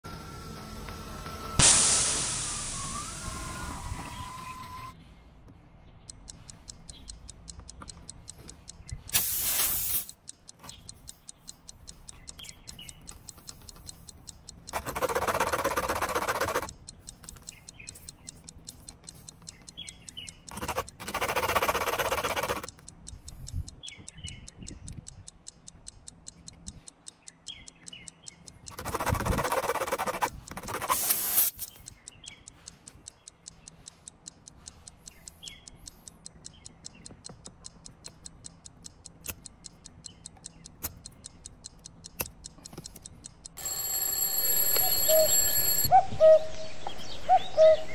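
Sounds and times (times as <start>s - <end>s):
fast clock-like ticking: 6.0s - 44.3s
tool rasping in a tire: 14.7s - 18.1s, 20.5s - 22.8s, 28.7s - 31.8s.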